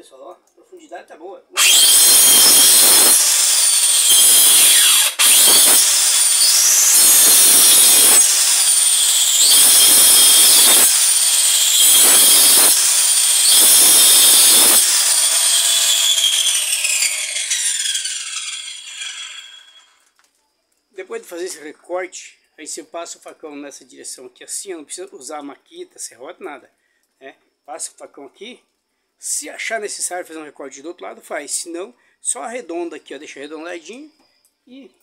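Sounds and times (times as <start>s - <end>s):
circular saw cutting wood: 1.6s - 20.0s
saw motor winding down: 1.6s - 20.0s.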